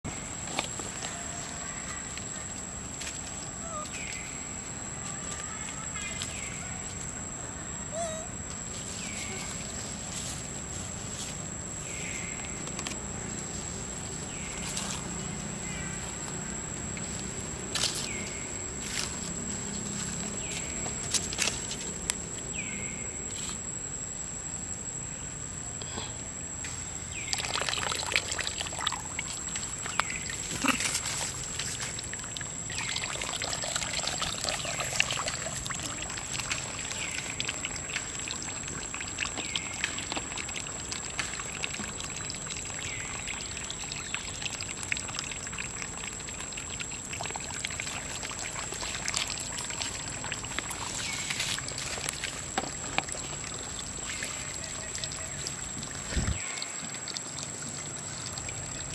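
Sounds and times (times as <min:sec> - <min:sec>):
short high calls: 0:07.9 - 0:08.4
water splashing into puddle: 0:27.1 - 0:58.9.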